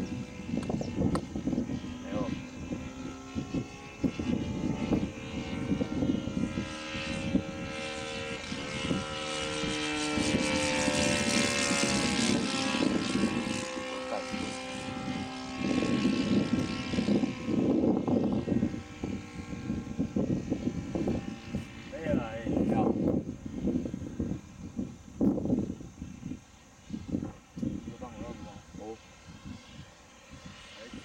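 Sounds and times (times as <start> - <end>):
model plane engine droning: 0.0 - 31.0
wind rumbling on microphone: 0.0 - 31.0.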